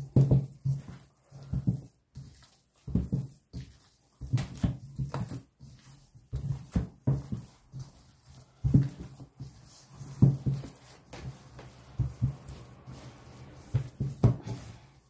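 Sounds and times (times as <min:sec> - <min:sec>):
hands slapping sticky dough: 0:00.0 - 0:15.0.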